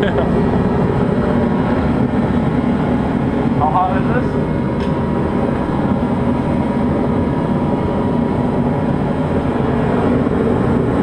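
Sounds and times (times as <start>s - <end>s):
heater fan and burner roar: 0.0s - 11.0s.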